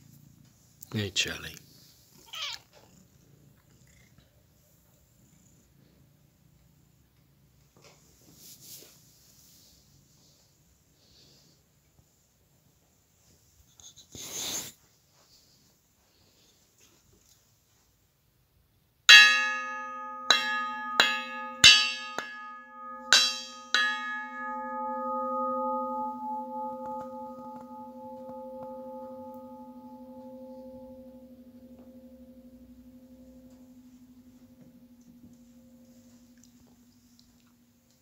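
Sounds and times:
metal bell ringing: 0:19.1 - 0:36.1.

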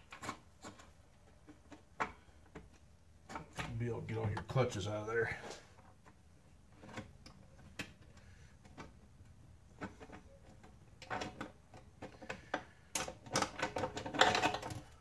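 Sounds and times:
parts clicking and clinking: 0:06.8 - 0:15.0.

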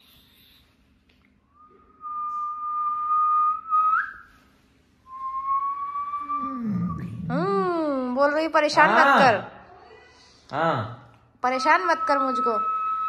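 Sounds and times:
dog whining: 0:06.2 - 0:07.7.

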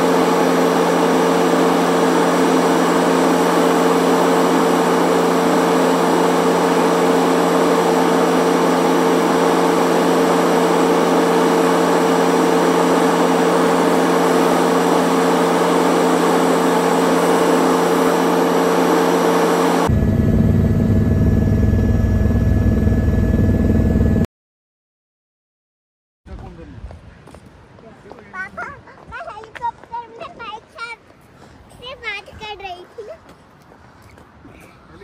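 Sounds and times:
helicopter engine and rotor drone: 0:00.0 - 0:24.2.

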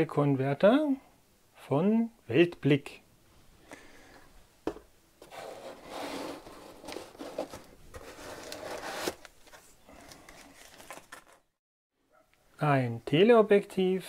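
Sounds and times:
foam packing scraping and rustling: 0:05.2 - 0:11.4.

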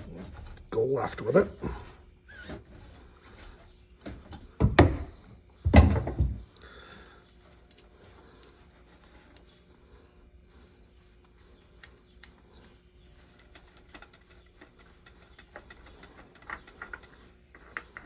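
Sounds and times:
faint handling noises: 0:06.0 - 0:18.0.

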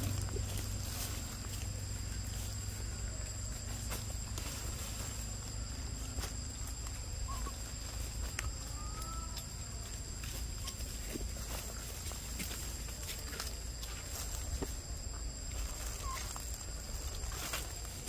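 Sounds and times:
clicks and rustles in dry leaves: 0:00.0 - 0:18.0
high insect drone: 0:00.0 - 0:18.0
short high calls: 0:07.2 - 0:07.8.

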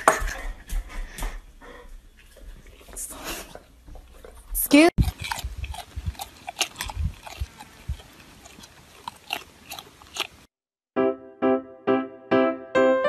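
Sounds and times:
alpaca chewing: 0:02.3 - 0:10.5.

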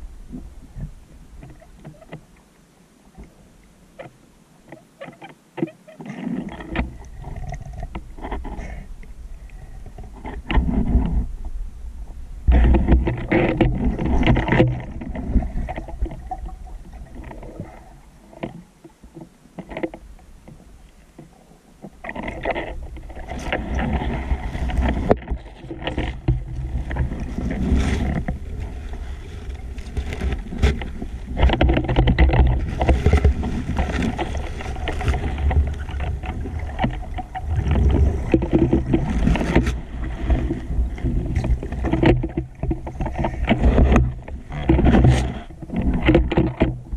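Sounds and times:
muffled underwater rumble: 0:00.0 - 0:46.9
water swishing against camera: 0:00.0 - 0:46.9
knocks and rustles: 0:12.5 - 0:17.7, 0:21.2 - 0:46.9.

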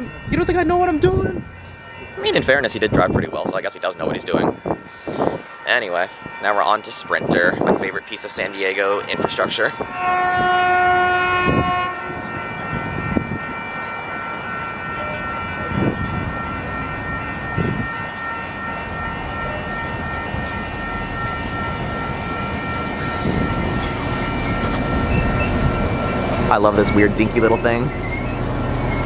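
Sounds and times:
train whine and rumble: 0:00.0 - 0:29.0
train horn blast: 0:09.1 - 0:12.8.

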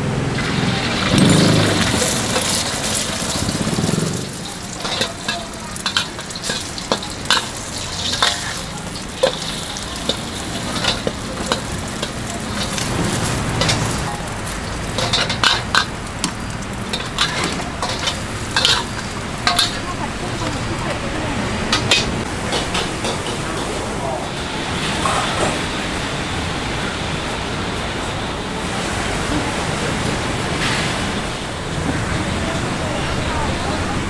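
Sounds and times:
food sizzling in a pan: 0:00.4 - 0:23.9
metal spatula scraping a pan: 0:01.2 - 0:20.0.

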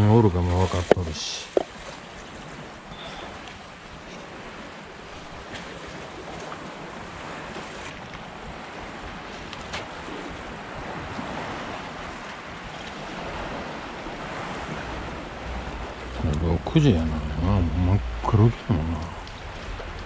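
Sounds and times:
waves washing against concrete: 0:00.0 - 0:20.0
faint clicks: 0:18.9 - 0:20.0.

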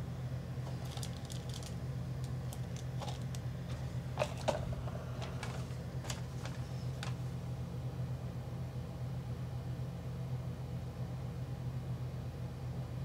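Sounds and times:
steady low hum: 0:00.0 - 0:13.0
cardboard and plastic rustling: 0:00.6 - 0:07.3.

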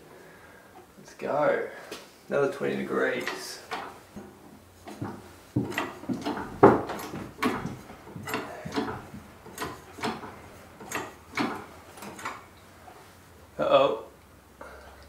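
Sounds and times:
hydraulic jack pumping clacks: 0:03.2 - 0:13.0.

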